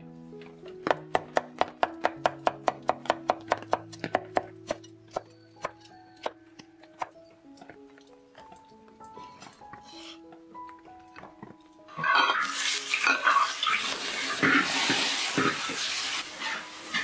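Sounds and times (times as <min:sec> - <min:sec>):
cleaver chopping on wooden board: 0:00.9 - 0:07.8.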